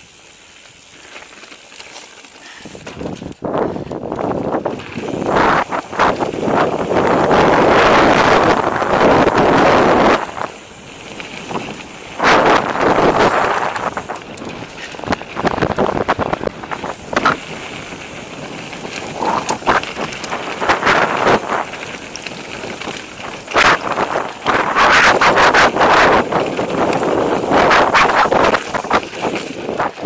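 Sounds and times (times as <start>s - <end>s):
tyres crunching over stones: 0.3s - 7.3s
bike clattering over bumps: 0.9s - 30.0s
wind buffeting microphone: 2.6s - 30.0s.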